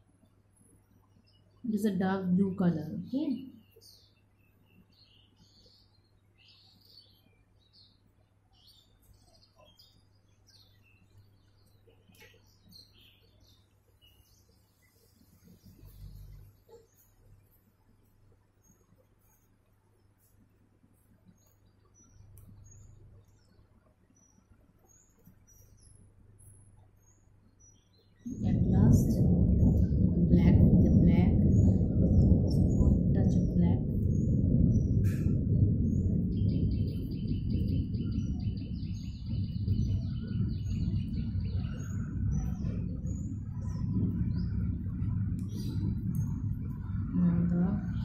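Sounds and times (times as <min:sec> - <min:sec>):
low steady hum: 0:00.0 - 0:48.0
steady low rumble: 0:15.3 - 0:17.5, 0:28.2 - 0:48.0.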